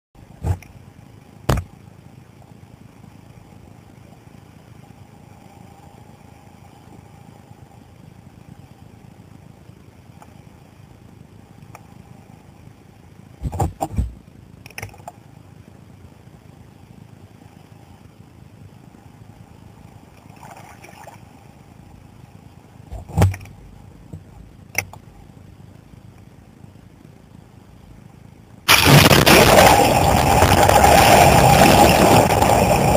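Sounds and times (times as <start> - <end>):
muffled underwater rumble: 0.2 - 32.9
sharp knocks: 1.5 - 1.7.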